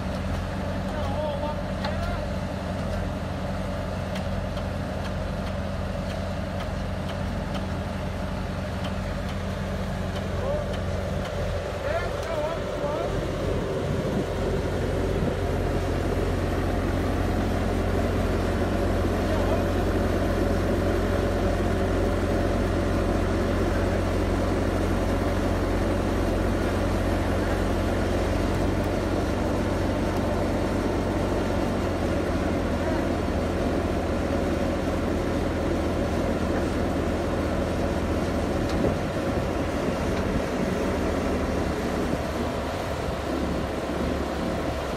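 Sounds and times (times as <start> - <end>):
diesel engine running under load: 0.0 - 44.9.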